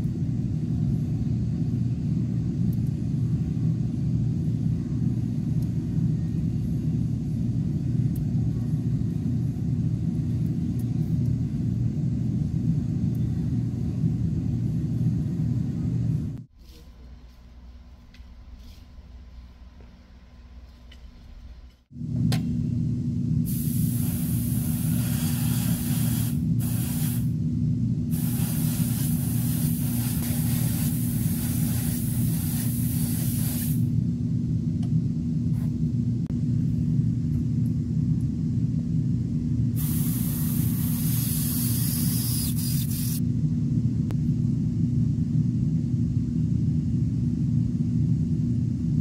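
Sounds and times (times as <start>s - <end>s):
low machine hum: 0.0s - 49.0s
spray paint hissing: 23.5s - 27.3s, 28.1s - 33.9s, 39.8s - 43.2s.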